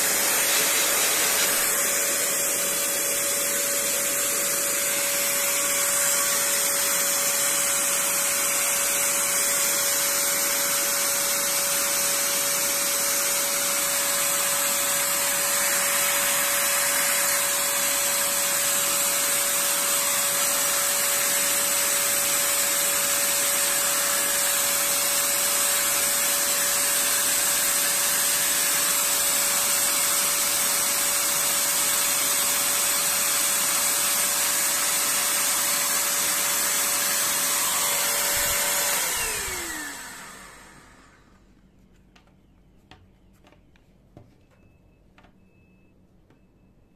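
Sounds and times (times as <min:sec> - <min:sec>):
blower-like hiss: 0:00.0 - 0:09.2.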